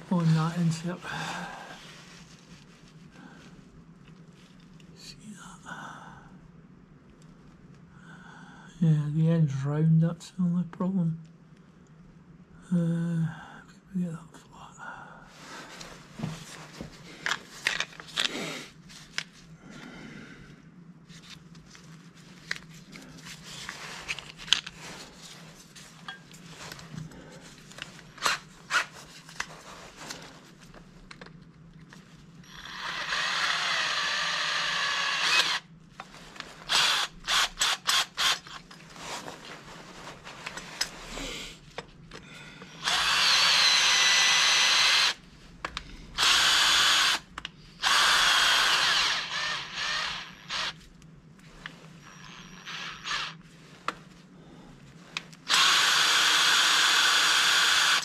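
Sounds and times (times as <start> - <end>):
electric drill running: 32.4 - 35.7, 36.7 - 38.6, 42.8 - 45.2, 46.2 - 50.8, 52.0 - 53.4, 55.5 - 58.0.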